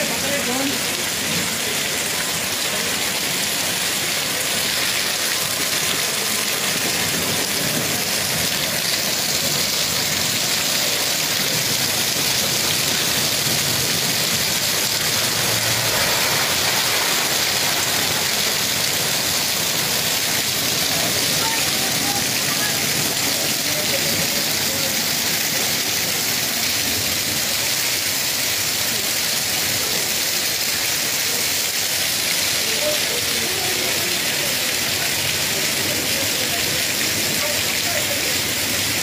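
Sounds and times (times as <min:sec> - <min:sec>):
hail and rain hissing: 0:00.0 - 0:39.0.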